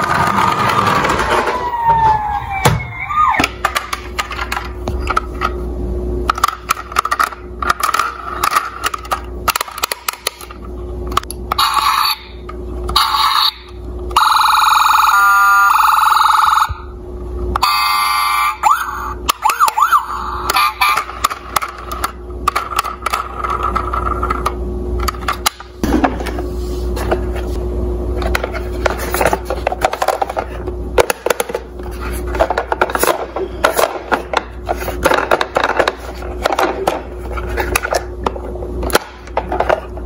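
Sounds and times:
toy siren: 0.3 - 3.5, 11.6 - 16.8, 17.6 - 21.3.

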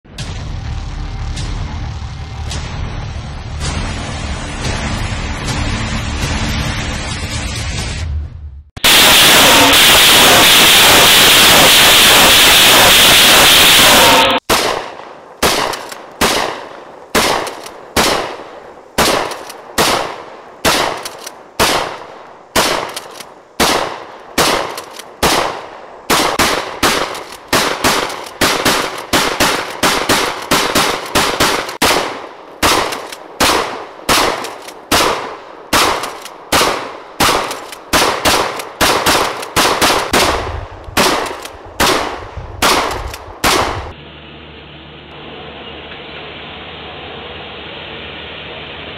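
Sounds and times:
loud distorted noise: 0.1 - 8.2, 8.8 - 14.5
shotgun shots: 8.8 - 43.9.

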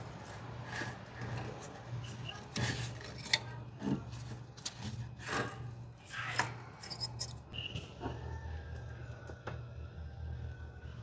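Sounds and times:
cables rubbing and scraping: 0.0 - 5.8.

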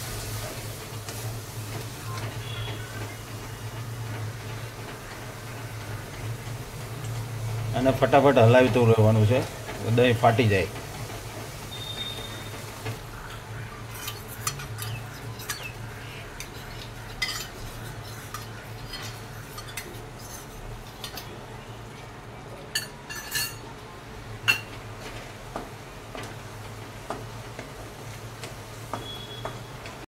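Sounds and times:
spatula scraping and knocking pan: 13.8 - 21.4.

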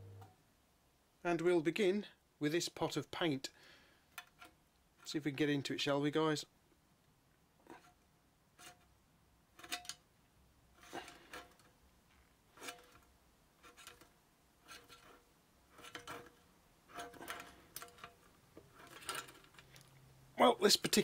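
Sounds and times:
screwdriver clicking and scraping metal: 9.6 - 10.0, 12.5 - 19.8.

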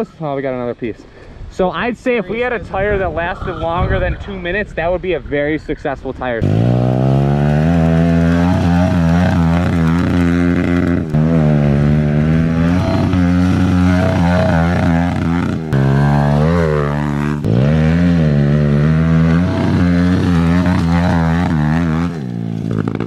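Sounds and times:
motorbike engine revving: 6.4 - 23.0.

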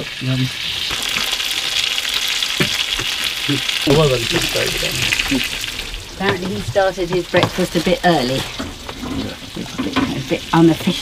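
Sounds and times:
sausages sizzling in a frying pan: 0.0 - 11.0.

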